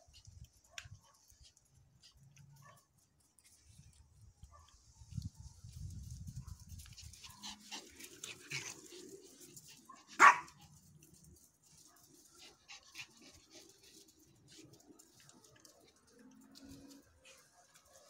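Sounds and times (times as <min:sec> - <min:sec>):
dog barking: 0:09.9 - 0:10.6.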